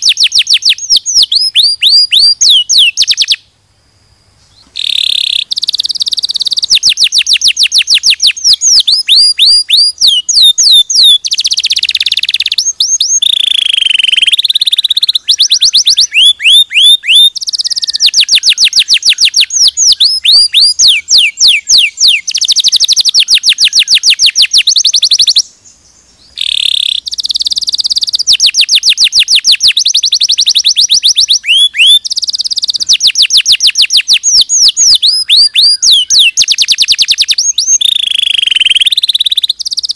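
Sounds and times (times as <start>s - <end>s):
canary singing rapid trills: 0.0s - 3.5s, 4.6s - 39.9s.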